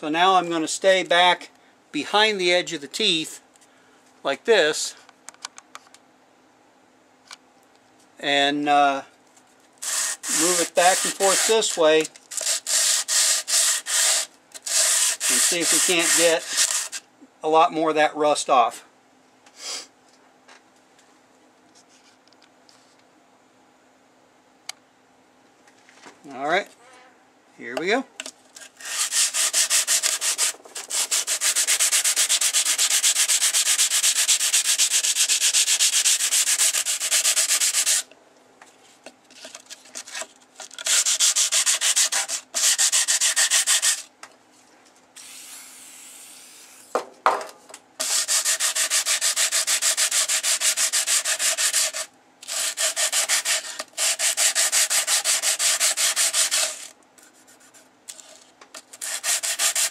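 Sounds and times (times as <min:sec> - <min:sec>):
sandpaper scrubbing metal blade: 0:09.8 - 0:17.0, 0:28.6 - 0:38.1, 0:40.8 - 0:44.1, 0:48.0 - 0:59.9.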